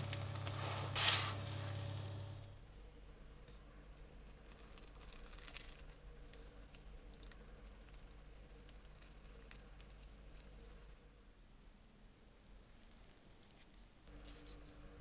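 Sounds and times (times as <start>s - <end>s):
crackling of crisp food and wrapper: 0.0s - 1.4s, 4.0s - 11.1s, 12.4s - 15.0s.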